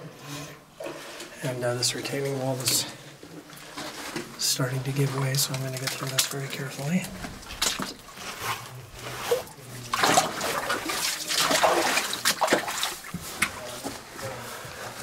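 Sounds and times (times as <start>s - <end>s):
shuffling footsteps: 12.7s - 15.0s.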